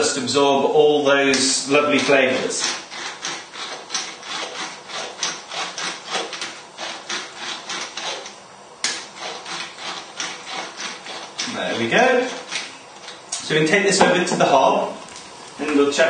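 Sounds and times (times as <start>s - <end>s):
pepper mill grinding: 1.6s - 13.2s.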